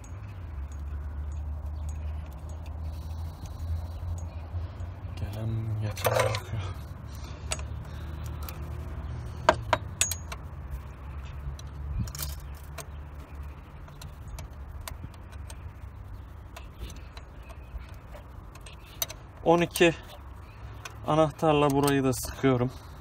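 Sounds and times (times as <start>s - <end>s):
steady low hum: 0.0s - 23.0s
metal tools clinking: 4.2s - 6.8s, 9.7s - 10.6s.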